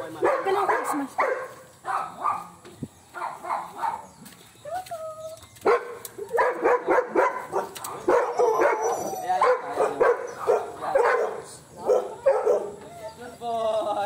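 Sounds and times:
dog barking: 0.2s - 2.5s, 3.2s - 4.1s, 5.6s - 12.8s
dog whining: 8.2s - 9.4s.

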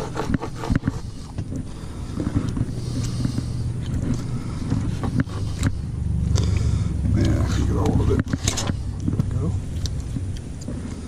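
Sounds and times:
knife scraping on cutting board: 0.0s - 1.2s
low engine-like drone: 0.0s - 11.0s.

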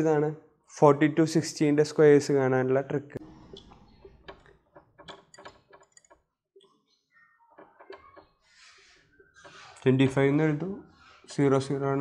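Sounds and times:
marker writing on whiteboard: 7.6s - 11.5s.

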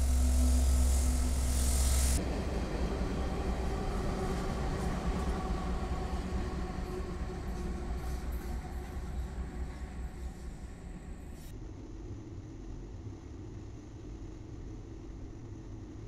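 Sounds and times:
diesel locomotive engine: 0.0s - 11.5s
wheels rumbling on rail: 0.0s - 11.5s.

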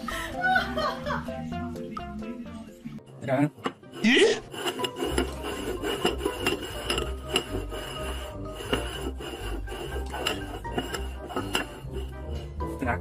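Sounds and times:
ceramic bowls scraping on wood: 3.0s - 13.0s.

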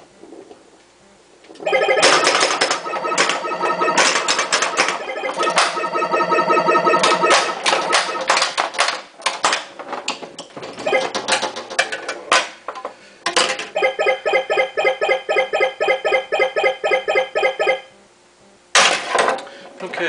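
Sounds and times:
electronic game tones: 1.6s - 8.6s, 10.8s - 11.3s, 13.7s - 18.0s
pinball ball and flippers clacking: 1.6s - 14.0s
rapid repeating electronic beeps: 1.7s - 8.5s, 10.9s - 11.2s, 13.8s - 17.9s.

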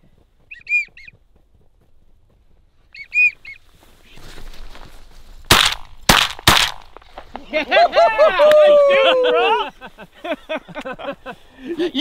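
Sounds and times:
duck call whistle: 0.5s - 1.1s
soft rustling: 1.8s - 5.5s.

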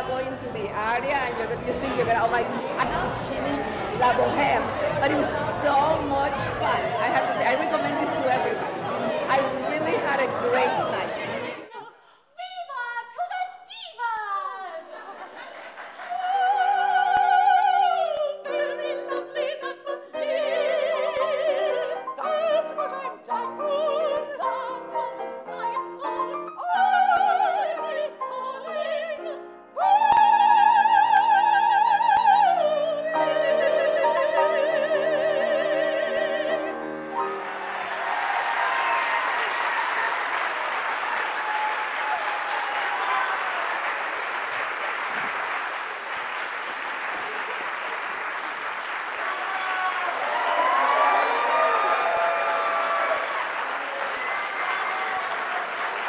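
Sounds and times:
sopranos singing opera: 1.8s - 12.0s, 16.0s - 38.3s
audience applause: 15.1s - 16.8s, 37.1s - 56.0s
piano accompaniment: 32.9s - 39.2s.

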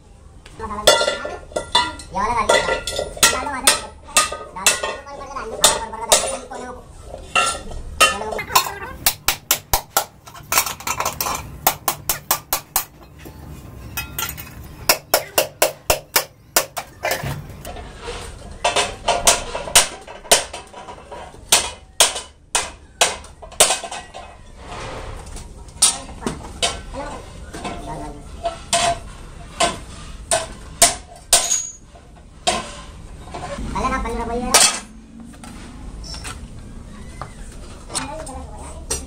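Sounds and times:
hand tools striking metal: 0.9s - 6.5s, 7.3s - 13.2s, 13.8s - 17.4s, 18.6s - 24.3s, 28.4s - 32.8s, 33.4s - 35.0s.

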